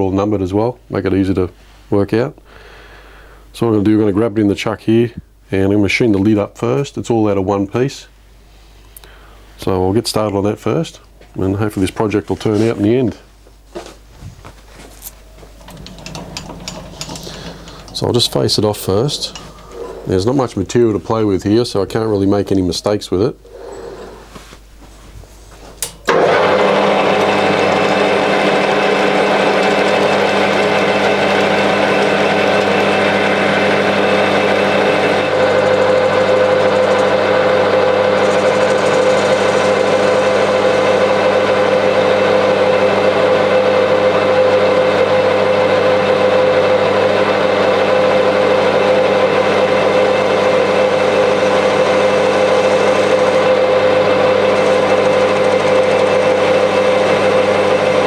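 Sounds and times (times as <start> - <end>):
metal lathe motor whine: 15.6 - 20.5, 26.1 - 58.0.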